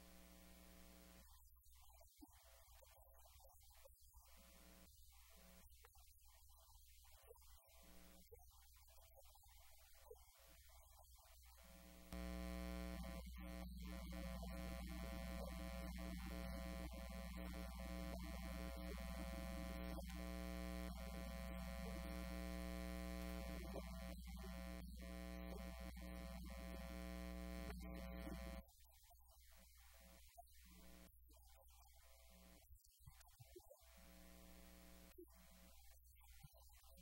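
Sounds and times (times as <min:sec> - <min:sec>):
electrical mains hum: 0:11.6 - 0:28.6.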